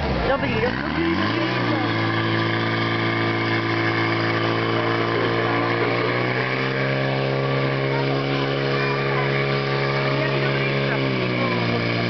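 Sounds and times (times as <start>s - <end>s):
fire pump engine running: 0.0s - 12.0s.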